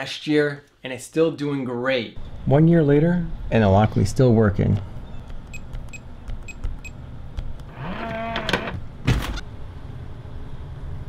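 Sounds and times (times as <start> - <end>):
high keypad beeps: 5.5 - 7.0
lock motor whirring: 5.8 - 9.4.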